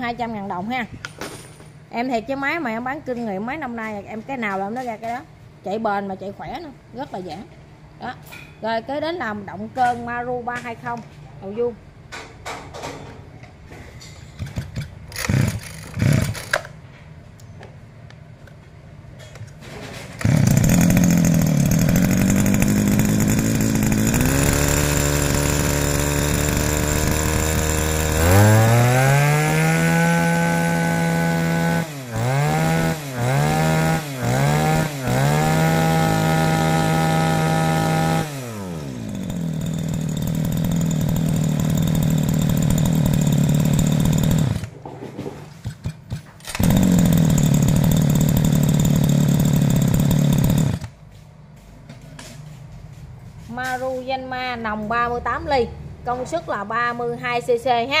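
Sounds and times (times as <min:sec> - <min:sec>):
brush-cutter engine revving: 0:14.4 - 0:16.7, 0:20.2 - 0:44.8, 0:45.6 - 0:51.0.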